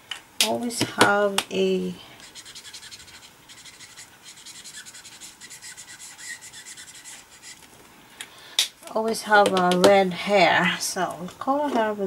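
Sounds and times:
marker scratching on paper: 2.2 - 7.7.

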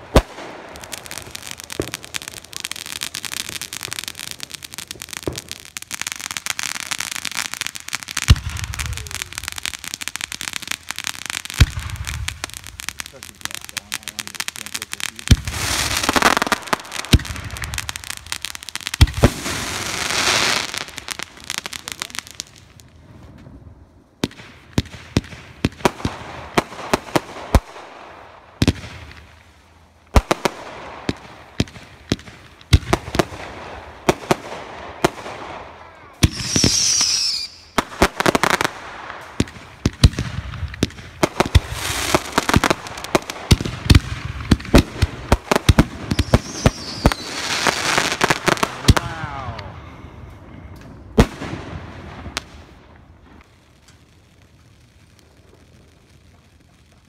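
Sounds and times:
fireworks bangs and pops: 0.0 - 57.0
fireworks crackling hiss: 0.0 - 57.0.

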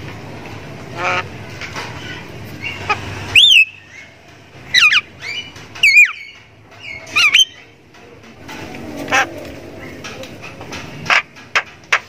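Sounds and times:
soft bird chatter: 1.9 - 11.4
bird whistled notes gliding down: 3.4 - 3.8.

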